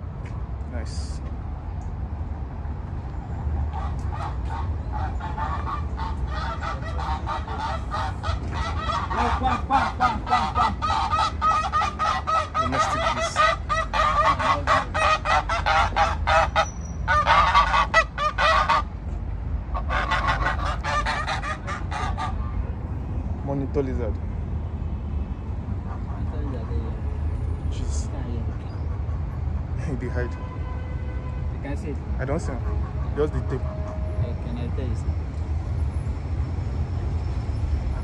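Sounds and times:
waterfowl calling rapidly: 3.8 - 18.9, 19.7 - 22.6.

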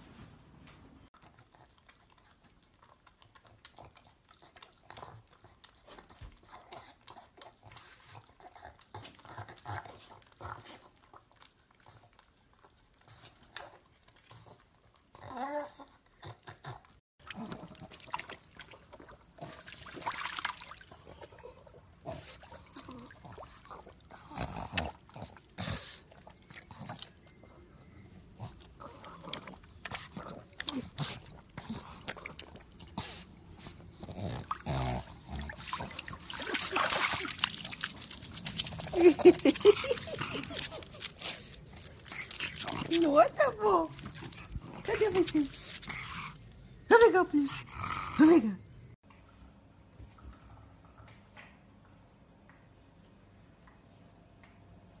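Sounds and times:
dog wading through shallow water: 17.2 - 21.5, 30.4 - 46.2
dog licking glass bottle: 35.6 - 43.0.

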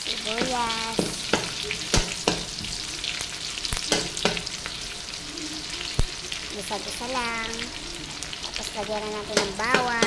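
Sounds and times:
onions sizzling in fat: 0.0 - 10.0
spatula knocking against pan: 0.4 - 2.7, 3.9 - 4.5, 9.3 - 10.0.

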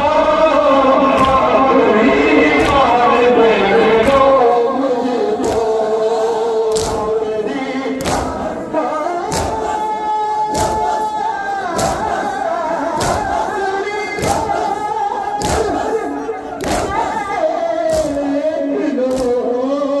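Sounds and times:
men chanting in unison: 0.0 - 20.0
chest-beating thuds: 8.0 - 8.6, 9.2 - 17.3.

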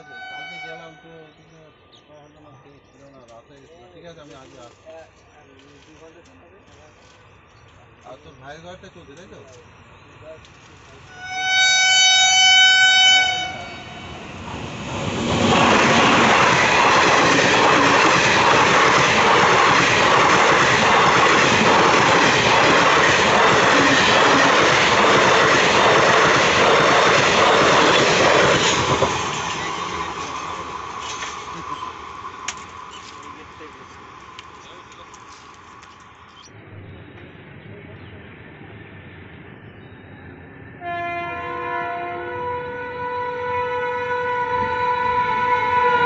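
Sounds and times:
train horn blast: 0.0 - 1.2, 11.1 - 14.3, 40.8 - 46.0
train wheels clattering on rails: 14.9 - 36.2.

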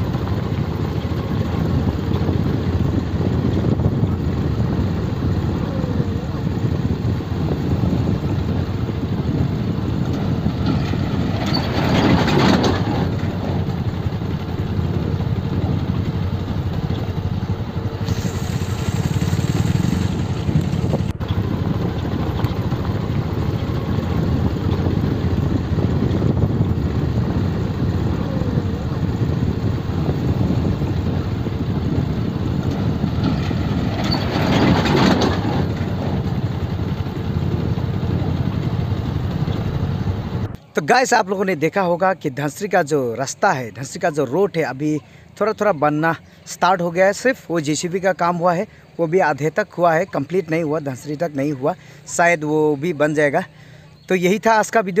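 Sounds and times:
wind noise on microphone: 0.0 - 40.6
motorcycle engine running: 0.0 - 40.7
road rumble: 0.0 - 55.0.

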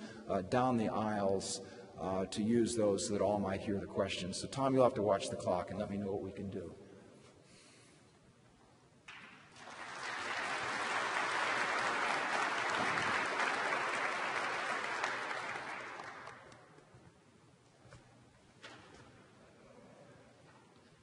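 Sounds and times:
audience applauding: 9.1 - 16.8.

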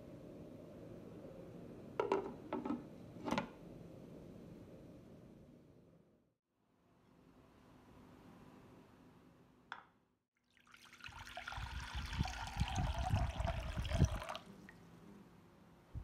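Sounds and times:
water pouring into saucepan: 10.4 - 14.8.

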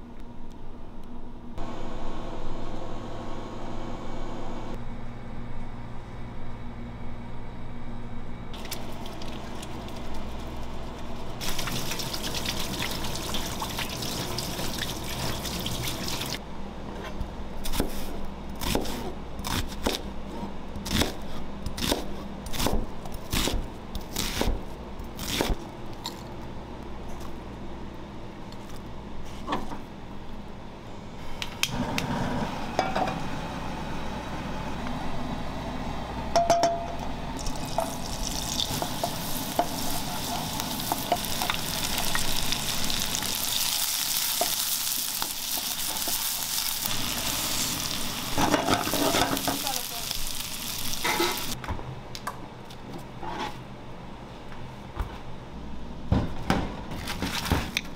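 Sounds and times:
butter sizzling in frying pan: 11.4 - 16.4, 37.4 - 51.6
tap water running over hands: 11.4 - 16.4
knife chopping on cutting board: 18.6 - 20.0.

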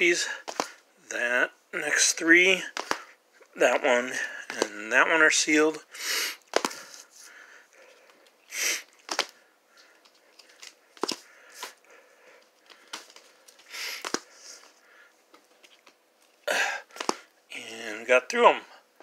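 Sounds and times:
jacket edges clicking together: 0.4 - 0.8, 9.0 - 9.4.

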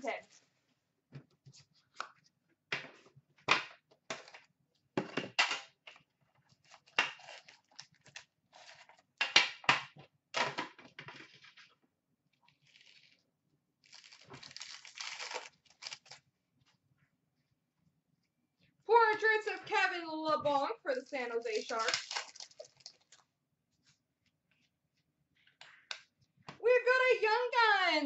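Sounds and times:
wrapper tearing open: 12.6 - 13.2, 13.8 - 16.2, 21.5 - 23.2.

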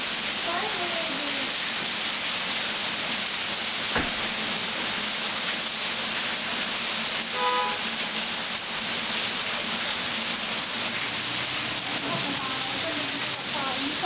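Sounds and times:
heavy rain on water and pavement: 0.0 - 14.0
sharp knock: 3.9 - 4.3.

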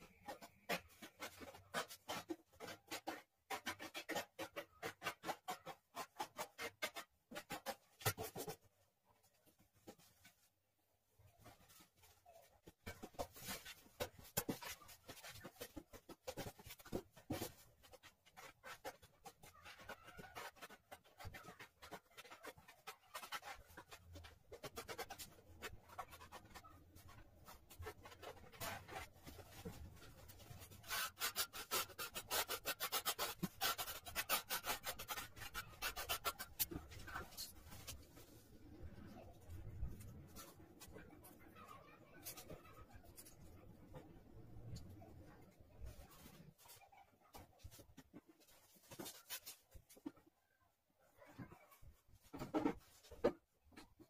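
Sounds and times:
notched trowel combing adhesive: 30.6 - 37.0
trowel scraping adhesive: 30.7 - 37.5.

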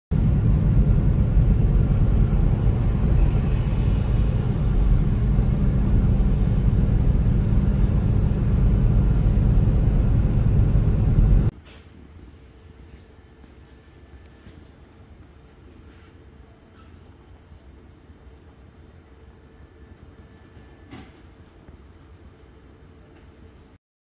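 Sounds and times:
car driving on highway: 0.2 - 11.5.

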